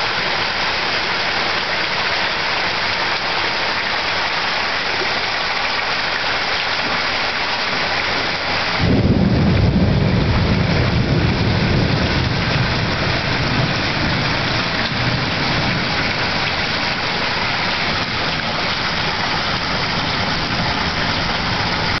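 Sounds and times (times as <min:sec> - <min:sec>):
heavy rain pouring: 0:00.0 - 0:22.0
thunder clap and rumble: 0:08.7 - 0:22.0.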